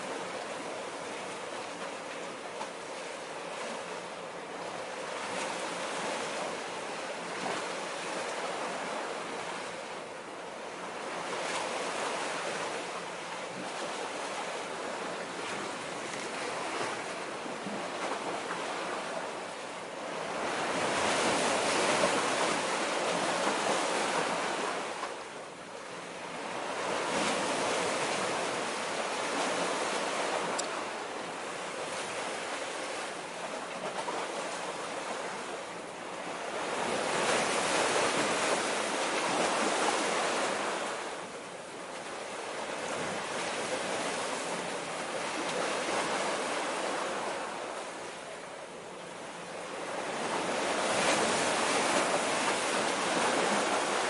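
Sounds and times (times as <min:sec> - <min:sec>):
waves washing against concrete: 0:10.8 - 0:48.5, 0:49.4 - 0:54.0.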